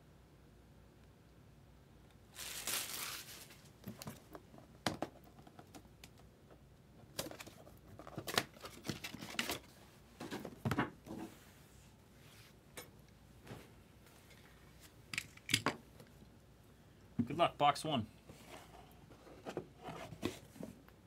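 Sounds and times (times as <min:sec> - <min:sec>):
paper rustling: 0:02.3 - 0:04.2.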